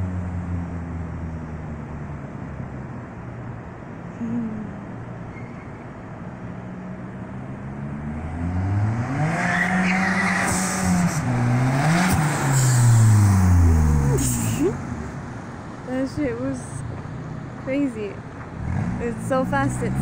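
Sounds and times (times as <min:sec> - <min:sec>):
turbocharged car engine accelerating: 0:07.4 - 0:15.4, 0:18.4 - 0:20.0.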